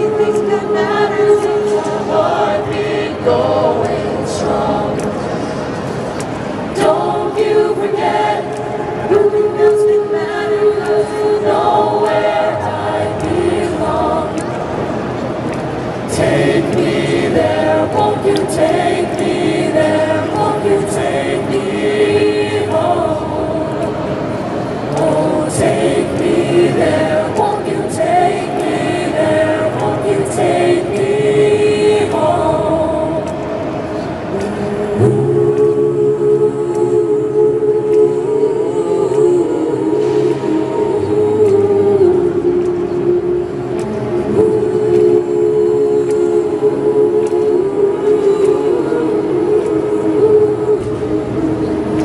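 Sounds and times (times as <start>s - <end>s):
choir singing a cappella: 0.0s - 52.0s.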